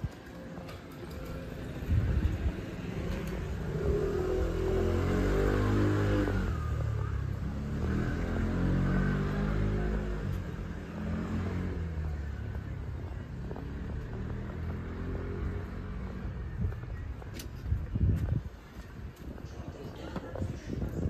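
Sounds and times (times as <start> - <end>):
vehicle driving past: 1.8 - 12.6.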